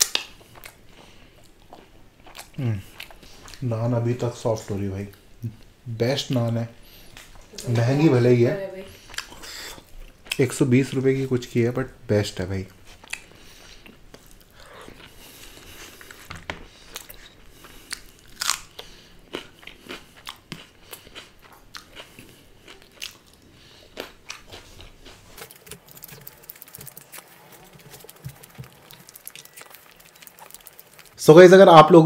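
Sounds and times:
person chewing: 0.0 - 3.6, 8.9 - 10.4, 12.8 - 31.2.

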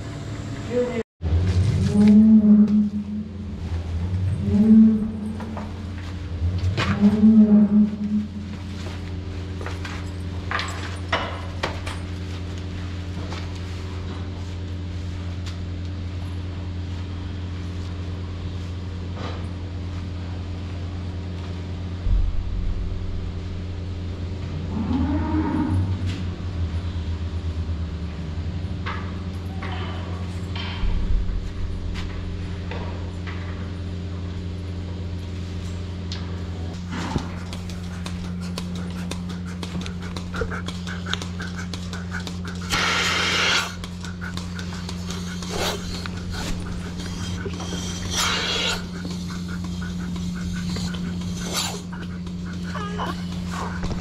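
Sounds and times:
low machine hum: 0.0 - 54.0
cow lowing: 1.8 - 9.2, 36.7 - 54.0.

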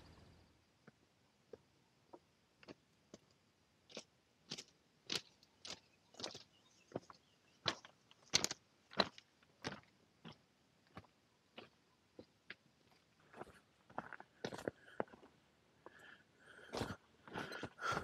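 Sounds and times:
footsteps crunching on scree: 3.9 - 11.8, 16.6 - 18.0.

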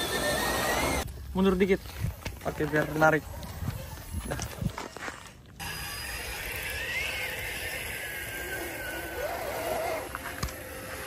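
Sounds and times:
electric winch whining: 0.0 - 1.0, 5.6 - 11.0.

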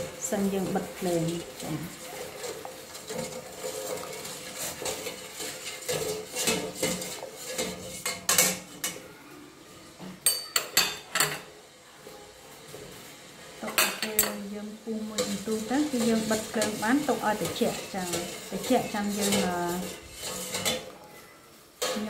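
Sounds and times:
ladle scraping steel pot: 0.0 - 9.0, 13.6 - 21.0, 21.8 - 22.0.

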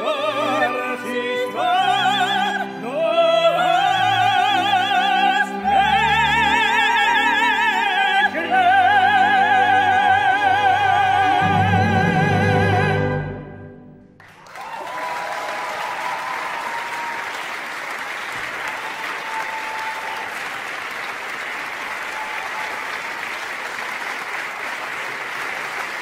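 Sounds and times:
person singing: 0.0 - 13.3
audience applause: 14.2 - 26.0
voices cheering: 14.4 - 17.7, 18.4 - 20.8, 21.6 - 23.4.

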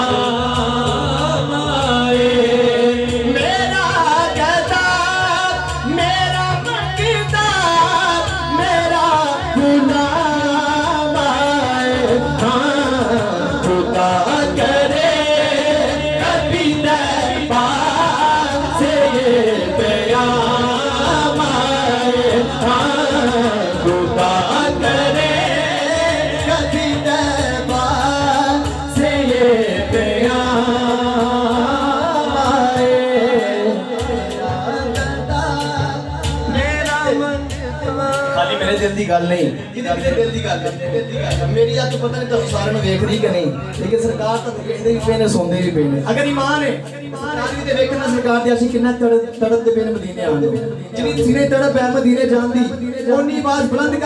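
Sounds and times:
man singing devotional song: 0.0 - 54.0.

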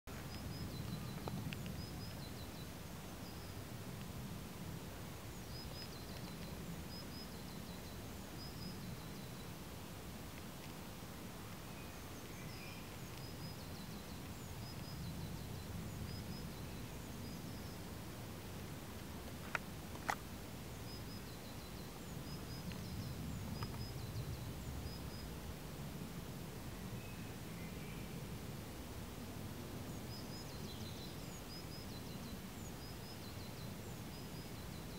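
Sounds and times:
small bird chirping: 0.1 - 3.7, 5.2 - 9.6, 11.5 - 17.9.

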